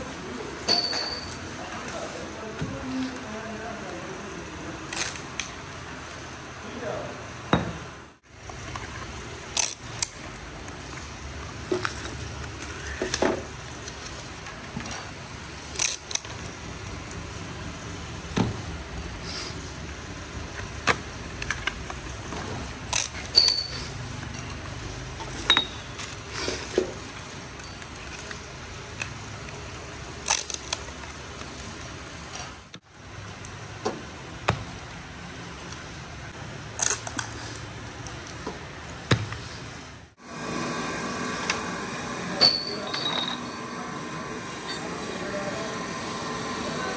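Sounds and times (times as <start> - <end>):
metal parts tapping and clicking: 20.6 - 24.6.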